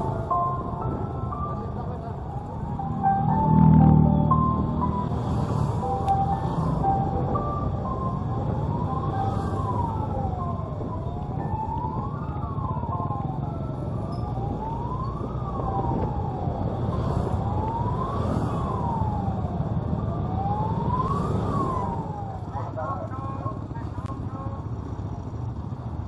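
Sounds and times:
motorcycle engines rumbling: 0.0 - 26.0
wind: 0.0 - 26.0
siren wailing: 2.1 - 22.8.

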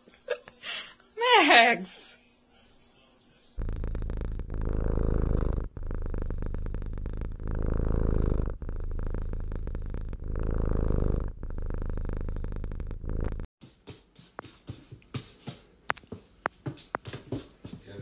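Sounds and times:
cat purring: 3.6 - 13.5.

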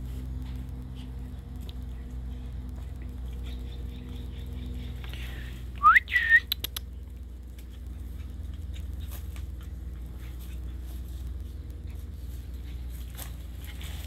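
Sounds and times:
person whistling: 5.8 - 6.6.

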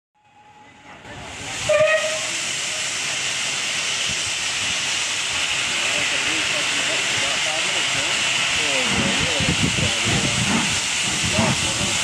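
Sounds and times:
steam hissing: 0.4 - 12.0
steam whistle toot: 1.6 - 2.4.

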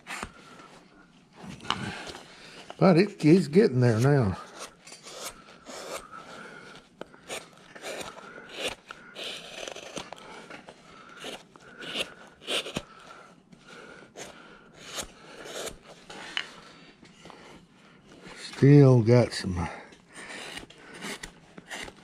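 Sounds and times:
carving tool scraping wood: 3.3 - 13.1, 14.2 - 16.6, 18.3 - 22.0.

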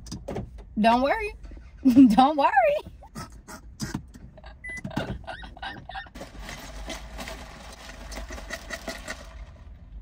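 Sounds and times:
car clicks: 0.0 - 1.6
low engine rumble: 0.0 - 10.0.

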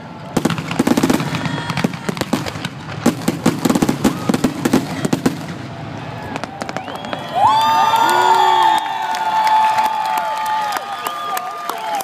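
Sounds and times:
fireworks bangs and crackling: 0.0 - 7.9.

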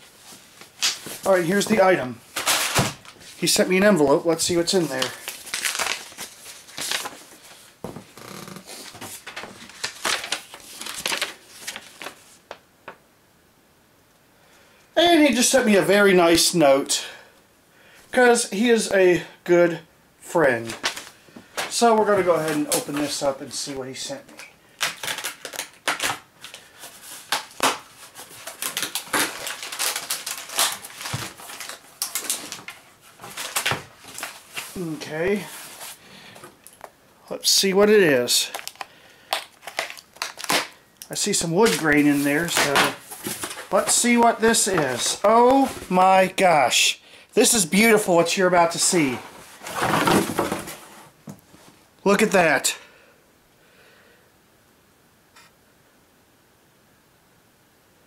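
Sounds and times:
paper rustling and tearing: 0.6 - 3.4, 4.4 - 7.8, 8.6 - 12.5, 24.8 - 36.0, 38.5 - 46.0, 48.6 - 51.0.

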